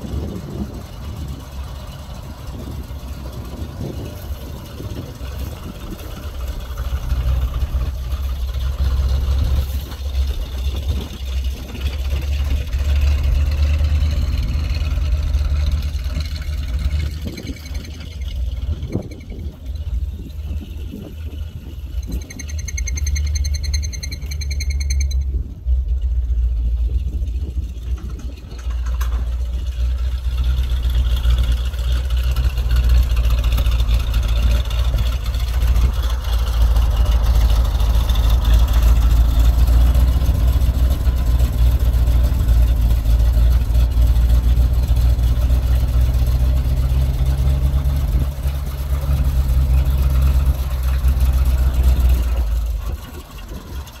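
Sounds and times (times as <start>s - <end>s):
truck engine running: 0.0s - 54.0s.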